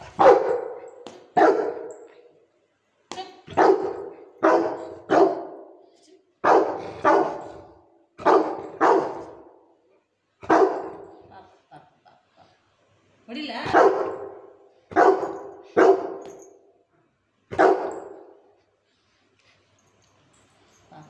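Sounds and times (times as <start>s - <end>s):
dog barking: 0.0s - 2.2s, 3.5s - 5.8s, 6.4s - 9.6s, 10.4s - 11.2s, 13.7s - 16.4s, 17.5s - 18.4s.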